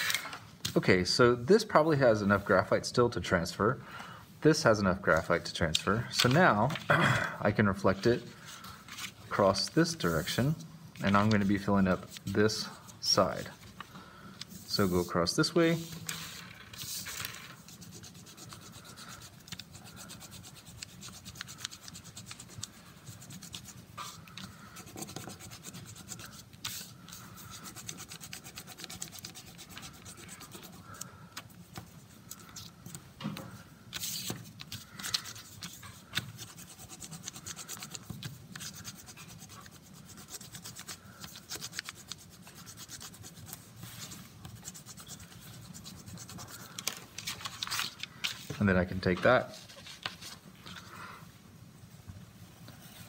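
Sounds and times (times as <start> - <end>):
pen scratching on paper: 16.2 - 32.7, 34.0 - 46.9.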